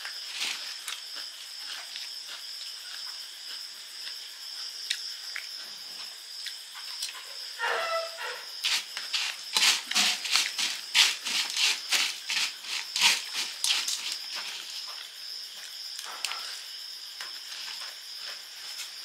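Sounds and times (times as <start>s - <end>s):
crickets chirping: 0.0s - 19.0s
spoon scraping puffed rice in bowl: 8.6s - 14.7s.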